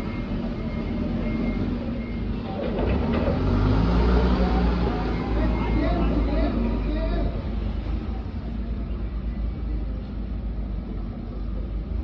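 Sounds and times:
forklift engine running: 0.0 - 12.0.

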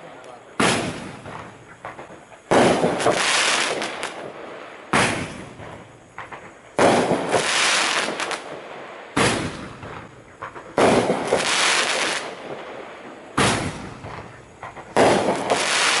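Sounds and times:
roman candle firework reports: 0.0 - 8.3
hissing firework tail: 0.0 - 16.0.

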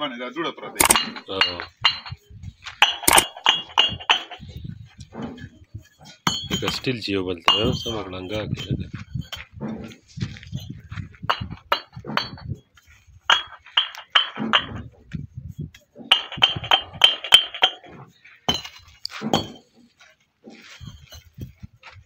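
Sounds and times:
bricks clinking together: 0.8 - 10.0, 11.3 - 12.6, 13.3 - 15.0, 16.0 - 19.8.

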